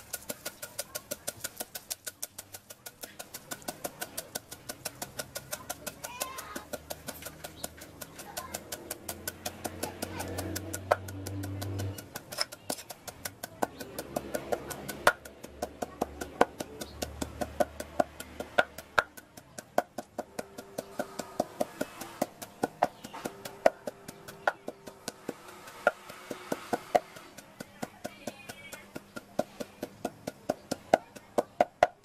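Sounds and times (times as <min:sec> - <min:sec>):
wooden pestle pounding in mortar: 0:00.0 - 0:32.0.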